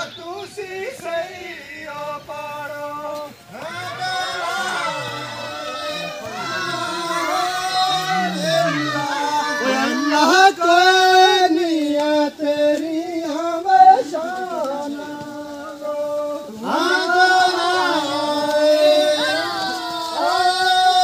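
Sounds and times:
person singing: 0:06.0 - 0:21.0.

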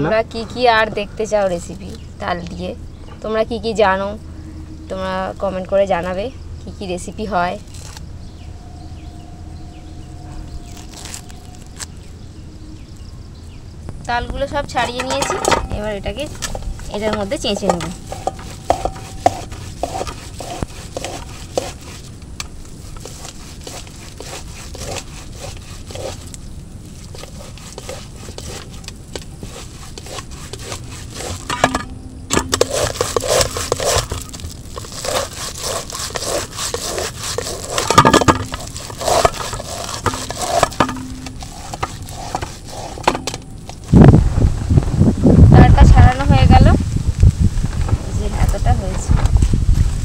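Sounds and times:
loud low rumble: 0:08.1 - 0:14.4
fruit pulp scraped on metal grater: 0:16.2 - 0:43.9.

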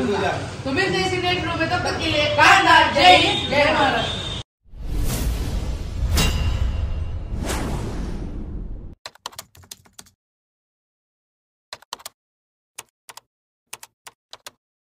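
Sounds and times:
whoosh sound effect: 0:04.7 - 0:09.0
keyboard typing clicks: 0:09.1 - 0:10.1, 0:11.8 - 0:12.2, 0:12.8 - 0:14.6.

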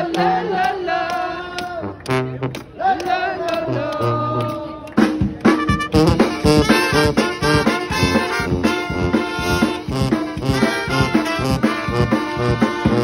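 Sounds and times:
brass band playing: 0:01.8 - 0:13.0.

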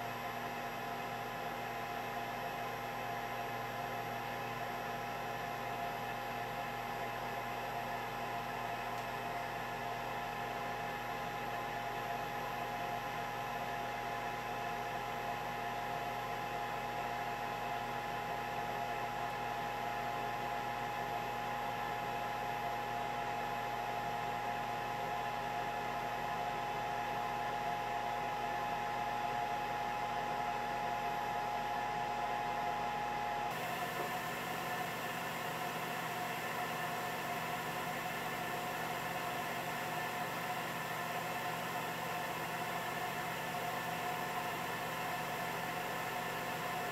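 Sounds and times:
air fryer fan whirring: 0:22.6 - 0:46.9.

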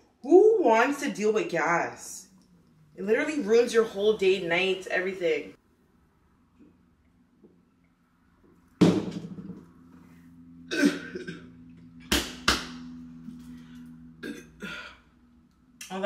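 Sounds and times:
woman coughing: 0:10.7 - 0:11.5.

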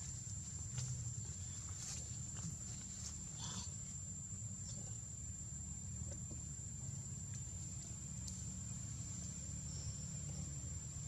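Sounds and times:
insects droning: 0:00.0 - 0:11.0
faint ticks: 0:08.2 - 0:08.5.

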